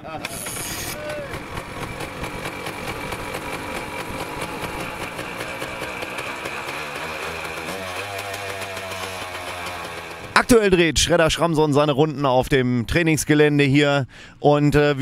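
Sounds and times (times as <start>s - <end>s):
motorcycle engine idling: 0.9s - 10.6s.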